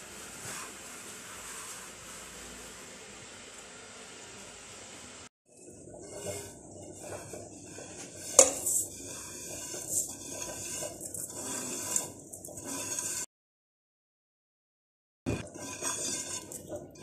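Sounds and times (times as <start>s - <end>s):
grains scraped off a plate: 6.0s - 13.3s, 15.3s - 17.0s.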